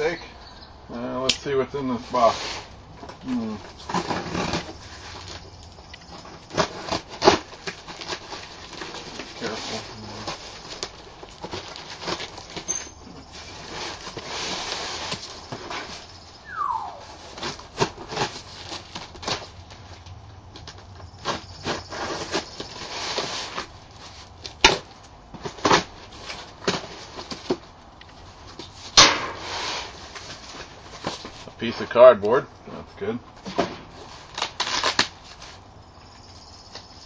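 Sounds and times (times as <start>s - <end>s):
cardboard and packing tape rustling: 1.4s - 16.4s, 17.0s - 32.3s, 33.3s - 35.8s
short squeal falling in pitch: 16.4s - 17.2s.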